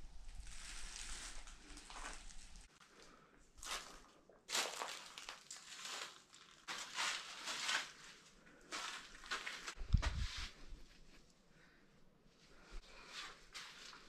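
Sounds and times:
footsteps crunching on gravel: 3.6s - 10.3s.

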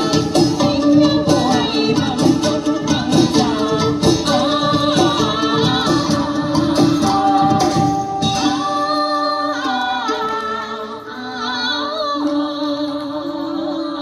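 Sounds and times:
percussion strokes: 0.0s - 11.1s
instrumental accompaniment: 0.0s - 13.4s.

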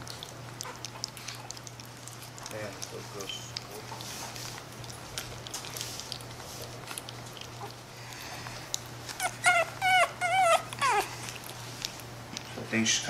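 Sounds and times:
puppy whining: 8.6s - 12.5s.

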